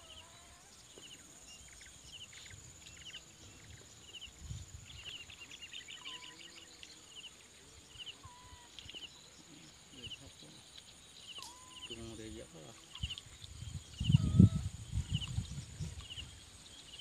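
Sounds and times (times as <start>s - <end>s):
high chirping calls: 0.0s - 17.0s.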